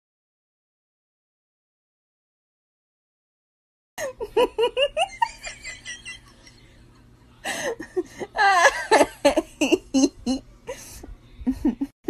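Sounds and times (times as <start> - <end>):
person giggling: 4.0 - 6.7, 7.5 - 11.9.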